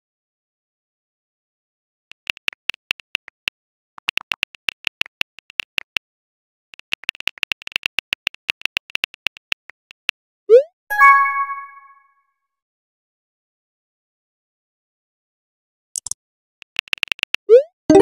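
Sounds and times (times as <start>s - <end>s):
chime: 10.9s - 12.1s.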